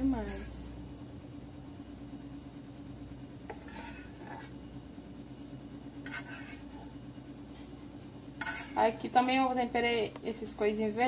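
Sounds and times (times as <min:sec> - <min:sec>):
utensil scraping a saucepan: 0:00.0 - 0:00.8, 0:03.4 - 0:04.6, 0:06.0 - 0:07.0, 0:08.4 - 0:09.6
steady low hum: 0:00.0 - 0:11.0.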